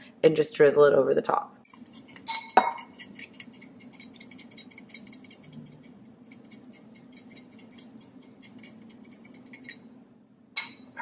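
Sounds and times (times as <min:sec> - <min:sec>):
fork whisking in ceramic bowl: 0:01.6 - 0:09.9.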